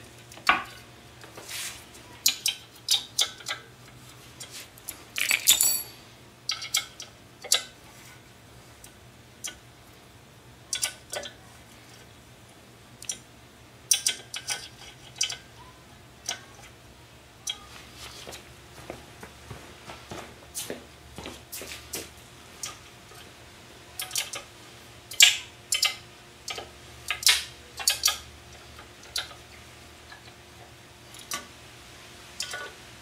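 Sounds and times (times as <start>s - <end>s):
metal-on-metal clicks and clinks: 5.2s - 6.0s.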